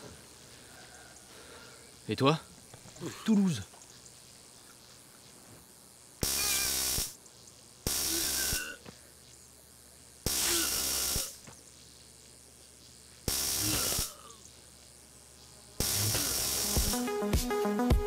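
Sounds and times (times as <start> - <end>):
stun gun crackling: 6.2 - 7.2, 7.8 - 8.8, 10.2 - 11.6, 13.2 - 14.2, 15.8 - 17.0.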